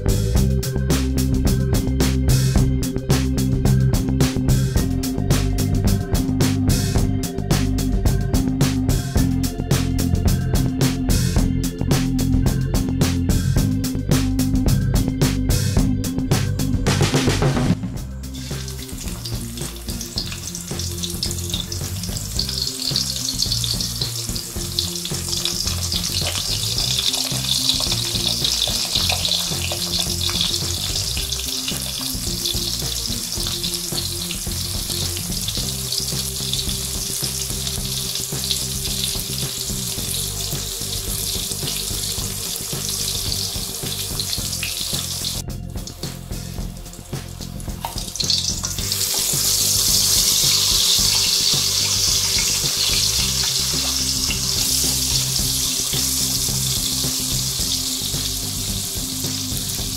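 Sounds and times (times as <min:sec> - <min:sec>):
soft background music: 0:00.0 - 0:59.9
fish sizzling in hot oil: 0:18.2 - 0:59.9.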